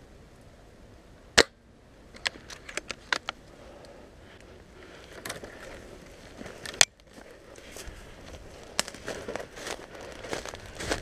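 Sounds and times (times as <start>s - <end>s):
twigs and leaf litter crackling: 2.1s - 11.0s
twig snapping: 8.7s - 9.4s.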